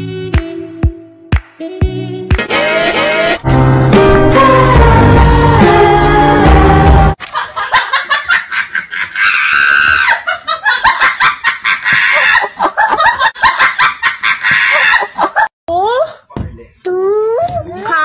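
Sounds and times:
music: 0:00.0 - 0:07.2
young man laughing hard: 0:07.3 - 0:15.5.

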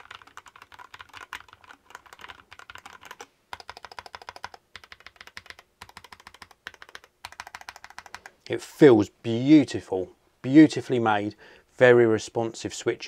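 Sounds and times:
mechanical keyboard typing: 0:00.0 - 0:08.3.

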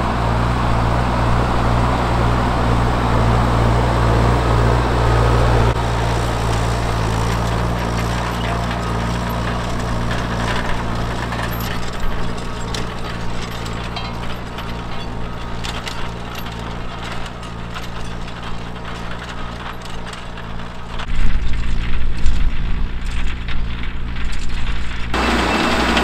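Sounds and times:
tractor diesel engine running: 0:00.0 - 0:26.0
metallic clicks and clanks: 0:05.7 - 0:25.2.

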